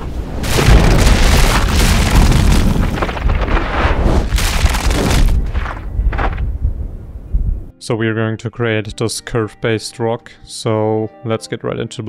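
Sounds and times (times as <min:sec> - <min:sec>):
deep cinematic booms: 0:00.4 - 0:07.7.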